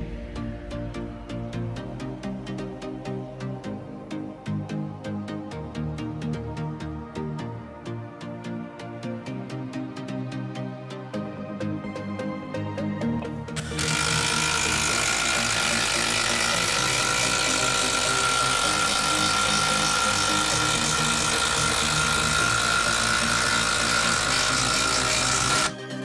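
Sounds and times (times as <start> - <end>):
impact driver hammering screw: 13.6 - 25.7.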